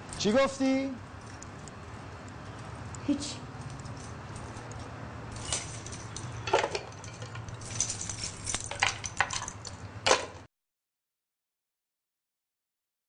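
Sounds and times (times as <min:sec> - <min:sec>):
keys jingling: 0:00.0 - 0:10.2.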